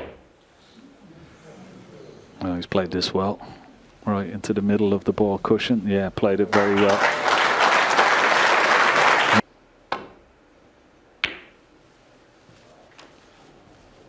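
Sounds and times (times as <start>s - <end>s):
crowd applauding: 6.5s - 9.4s.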